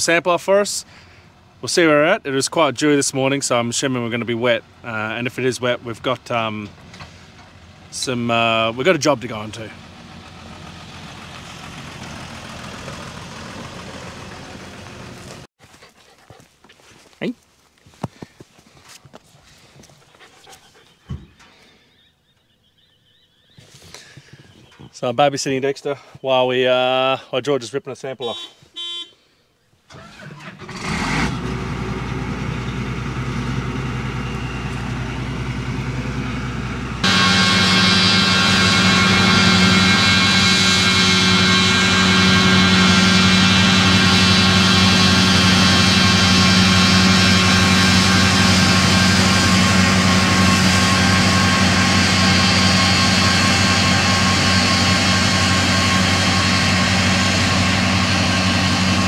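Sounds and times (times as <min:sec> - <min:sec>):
farm machinery droning hum: 0:00.0 - 0:15.8, 0:29.9 - 0:59.0
vehicle engine idling: 0:00.5 - 0:15.5, 0:31.4 - 0:59.0.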